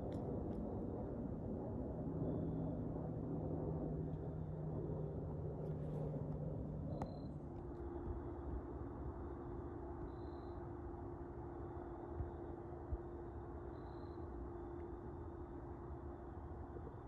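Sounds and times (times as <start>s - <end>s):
faint steady hum: 0.0s - 17.0s.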